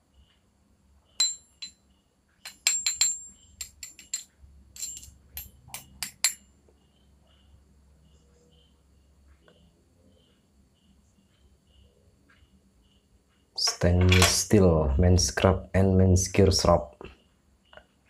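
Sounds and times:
metal reel parts clicking: 2.4s - 6.4s.

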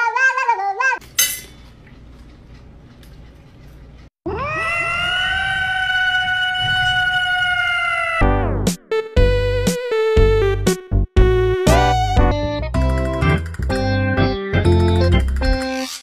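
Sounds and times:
cat yowling: 0.0s - 1.0s, 4.3s - 8.3s.

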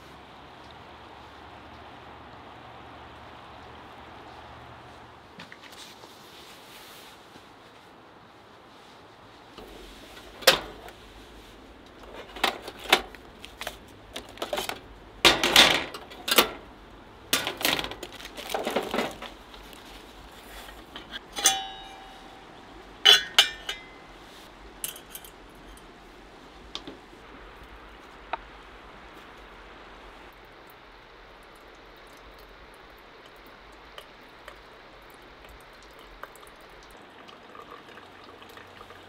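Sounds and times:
steel coffee gear clinking: 20.9s - 24.2s, 24.8s - 25.9s
ringing metal knocks: 21.2s - 24.1s.

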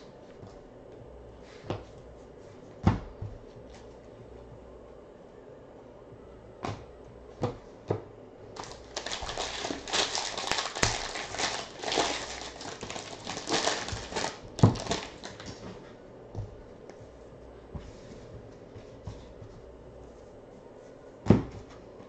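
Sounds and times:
foil wrapper crinkling: 8.6s - 15.6s.

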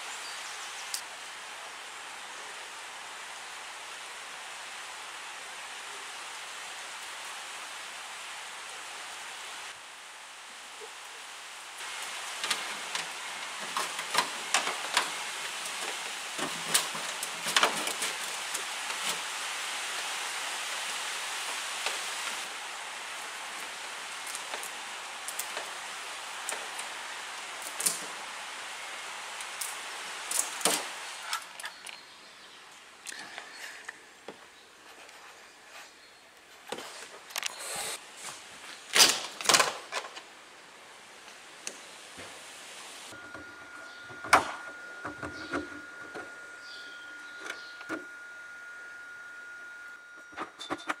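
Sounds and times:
rain hiss: 0.0s - 43.2s
clicks knocks and rustles: 12.4s - 19.2s.

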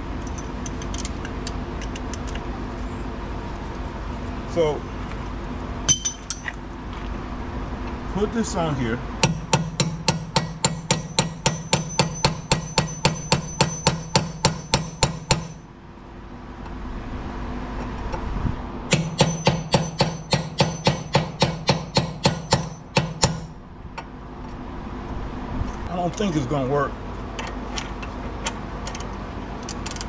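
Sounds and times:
hammer striking metal socket: 5.9s - 6.6s, 9.2s - 15.6s, 18.9s - 23.5s.

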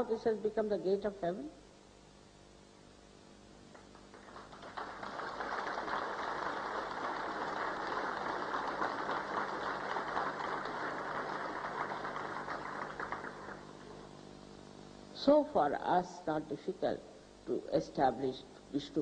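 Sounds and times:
audience applauding: 3.8s - 14.1s.

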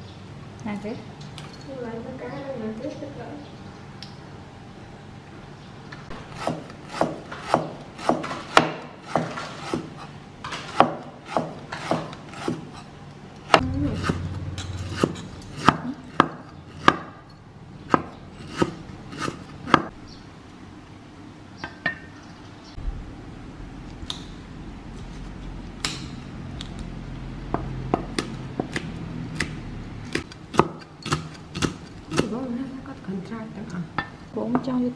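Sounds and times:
cleaver chopping on wooden board: 6.4s - 10.0s, 10.7s - 12.7s, 14.9s - 17.1s, 17.9s - 19.9s, 28.0s - 32.3s.

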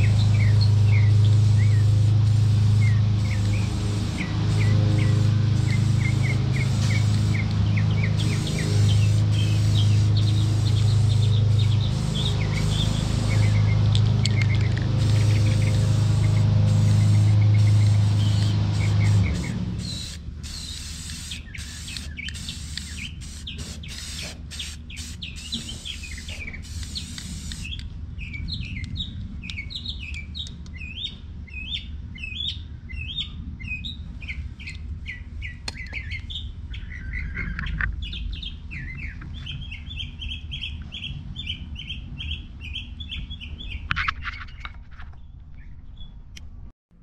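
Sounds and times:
spray paint can hissing: 0.0s - 27.8s
songbirds chirping: 0.0s - 46.4s.

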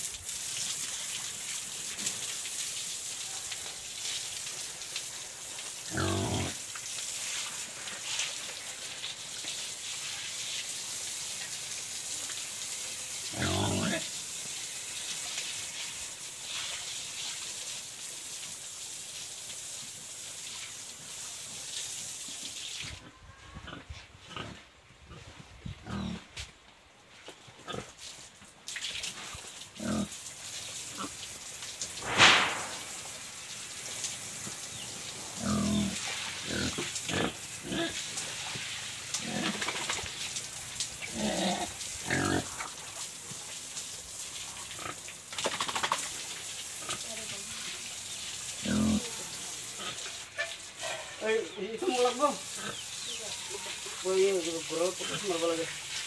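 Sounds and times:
water hissing from hose: 0.0s - 23.0s, 27.8s - 56.0s
pig grunting: 5.9s - 6.6s, 13.3s - 14.1s, 23.6s - 26.3s, 35.4s - 38.0s, 41.1s - 42.5s, 48.6s - 49.2s
loud sharp sound: 32.0s - 33.2s.

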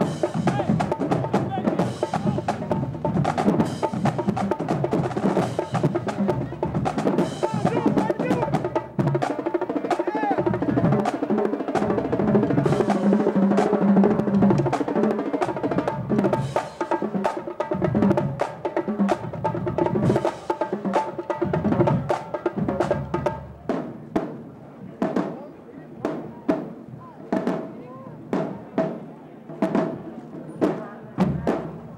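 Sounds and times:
bass drums: 0.0s - 9.3s
snare drums: 0.0s - 31.9s
tenor drums: 0.0s - 31.9s.

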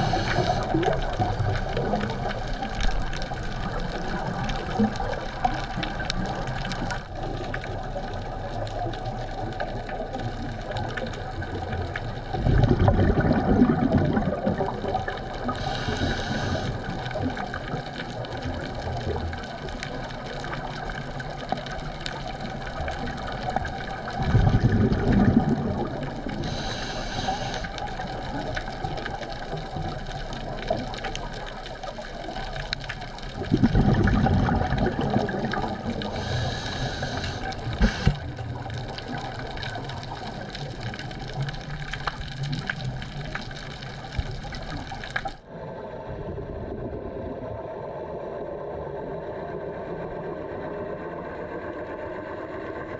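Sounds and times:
regulator inhale hiss: 0.0s - 0.9s, 15.5s - 17.2s, 26.3s - 27.9s, 36.0s - 38.2s
exhaled bubbles rushing: 0.0s - 50.4s.

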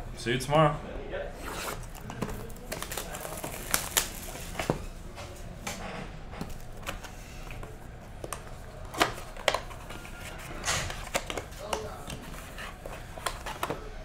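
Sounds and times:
hands tapping and scraping cardboard: 6.4s - 13.9s.

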